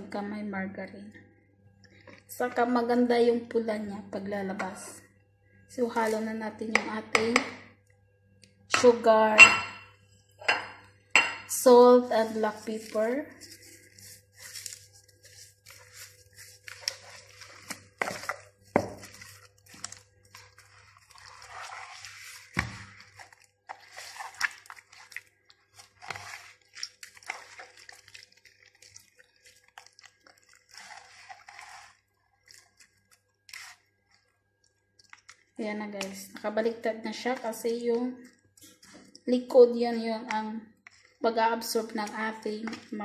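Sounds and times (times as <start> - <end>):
hand rubbing raw chicken: 12.5 - 33.8.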